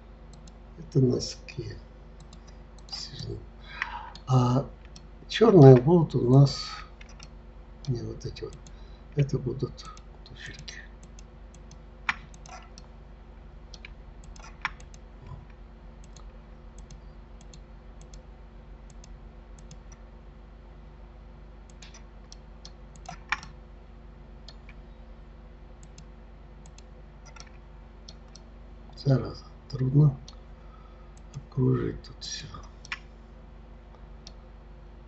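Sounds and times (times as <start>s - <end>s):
low electrical hum: 0.0s - 35.0s
mouse and keyboard clicks: 10.6s - 12.9s, 13.8s - 15.0s, 23.0s - 23.6s.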